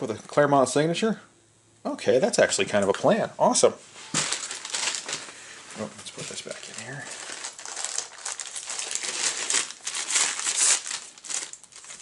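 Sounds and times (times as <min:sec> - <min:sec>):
plastic packaging crinkling: 0:04.1 - 0:12.0.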